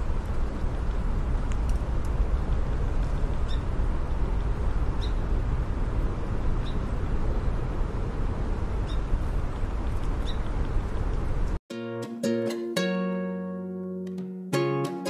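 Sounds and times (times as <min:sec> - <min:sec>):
steady low rumble: 0:00.0 - 0:11.6
bird chirping: 0:03.4 - 0:03.7, 0:05.0 - 0:05.2, 0:06.6 - 0:06.9, 0:10.2 - 0:10.5.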